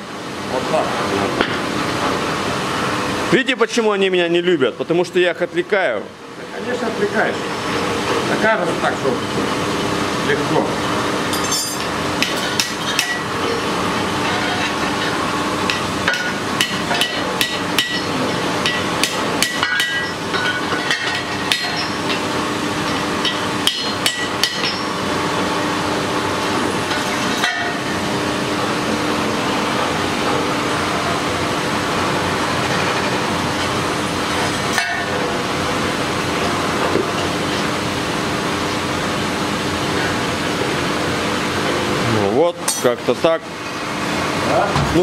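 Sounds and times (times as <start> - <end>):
rushing shop noise hum: 0.0 - 45.0
hammer striking metal on anvil: 42.6 - 43.0.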